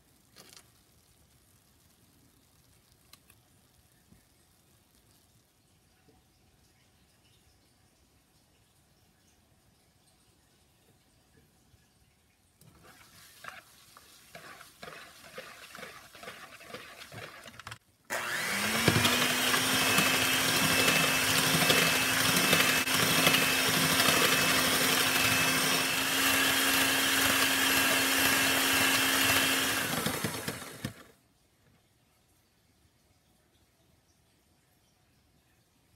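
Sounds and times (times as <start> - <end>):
electric hand mixer whirring: 14.3 - 31.1.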